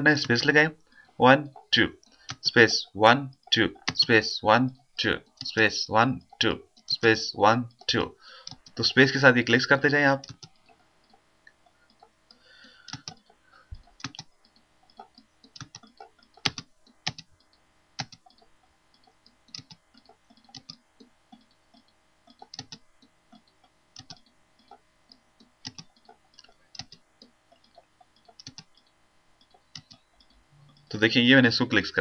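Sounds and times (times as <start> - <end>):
computer mouse clicks: 7.7 - 9.2, 9.8 - 31.0.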